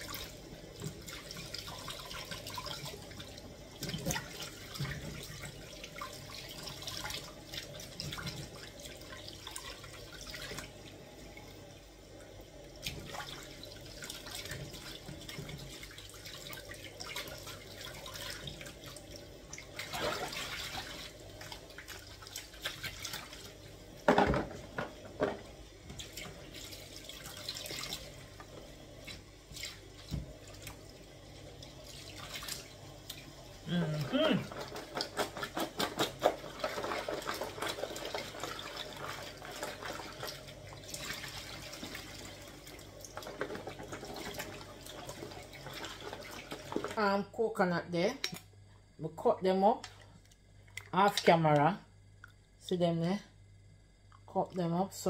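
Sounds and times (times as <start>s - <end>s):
splashing in plastic tub: 12.8s - 28.2s, 29.0s - 30.8s, 34.1s - 47.0s.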